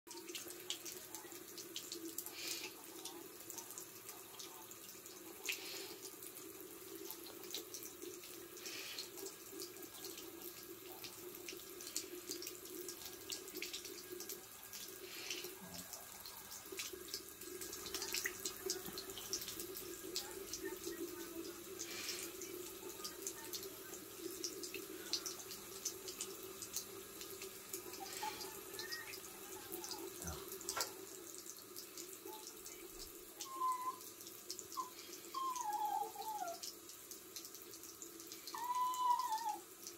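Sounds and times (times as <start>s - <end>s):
cat lapping water: 0.1s - 33.2s
tap water running into sink: 0.1s - 39.9s.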